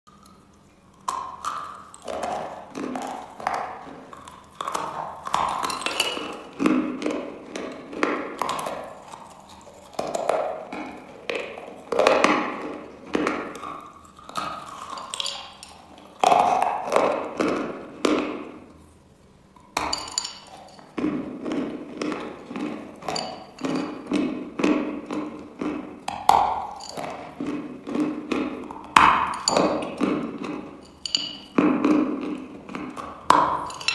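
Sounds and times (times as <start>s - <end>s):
chalk being bitten and chewed: 0.1s - 18.1s.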